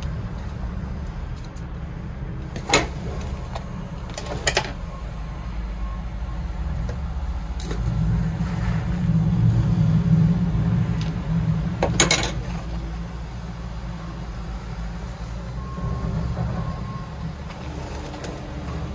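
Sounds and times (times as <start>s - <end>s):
low rumble: 4.8s - 18.9s.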